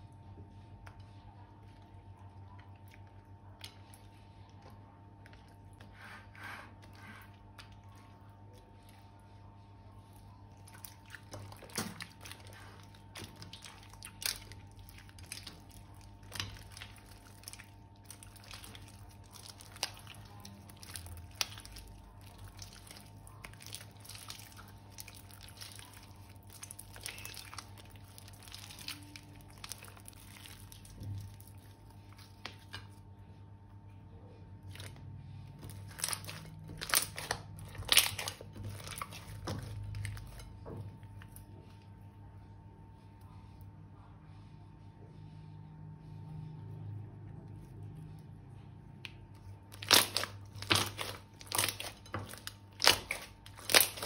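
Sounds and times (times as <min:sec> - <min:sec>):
sticky slime clicks and crunching: 0:10.5 - 0:33.0, 0:34.6 - 0:40.5, 0:48.9 - 0:54.0.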